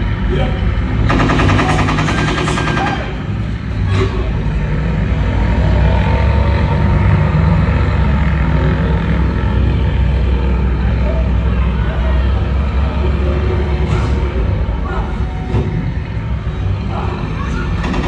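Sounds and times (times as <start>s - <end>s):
propeller plane engines droning: 0.0s - 18.0s
rapid rattling burst: 1.0s - 3.7s.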